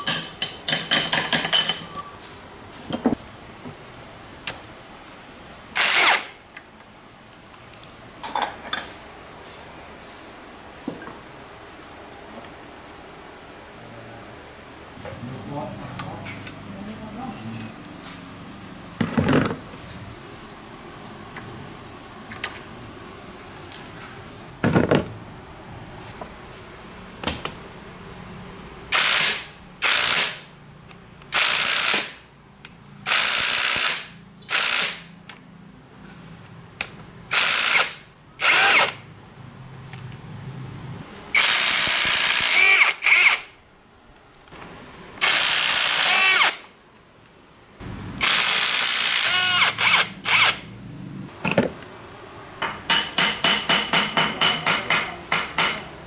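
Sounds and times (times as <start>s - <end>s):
handheld power tool bursts: 5.8s - 6.4s, 28.9s - 30.5s, 31.3s - 32.2s, 33.1s - 35.1s, 37.3s - 39.0s, 41.4s - 43.5s, 45.2s - 46.6s, 48.2s - 50.6s.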